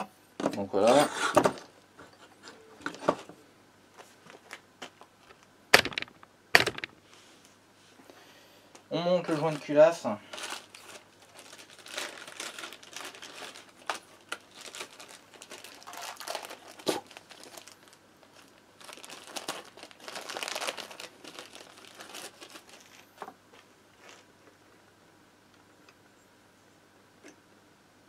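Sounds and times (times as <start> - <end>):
plastic bag crinkling: 4.3 - 7.0, 9.2 - 23.3, 24.0 - 24.3.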